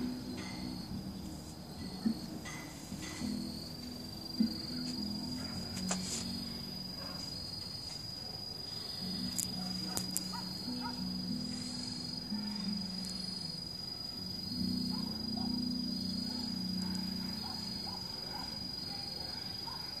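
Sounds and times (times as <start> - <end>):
low hum: 0.0 - 7.5
crickets trilling: 0.0 - 20.0
faint pulsing chirp: 0.0 - 20.0.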